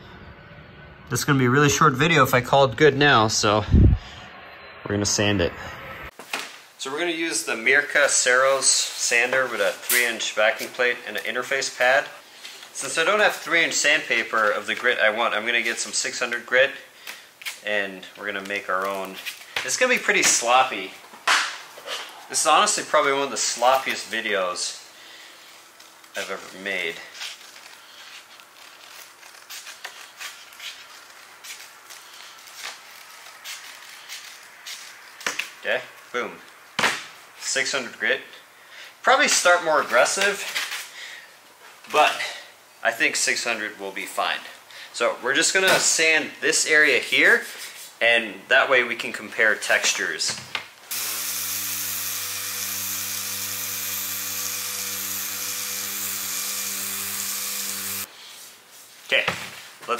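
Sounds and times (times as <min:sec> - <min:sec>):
electric sander motor hum: 0:50.9 - 0:58.1.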